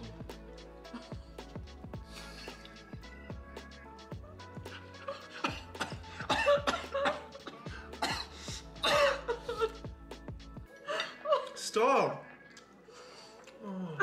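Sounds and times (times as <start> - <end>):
soft background music: 0.0 - 14.0
person coughing: 5.3 - 9.8
person laughing hard: 8.8 - 9.8.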